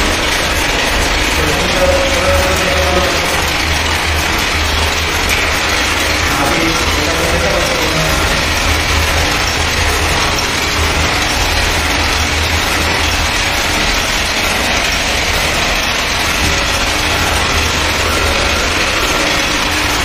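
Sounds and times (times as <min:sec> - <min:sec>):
loom machinery running: 0:00.0 - 0:20.0.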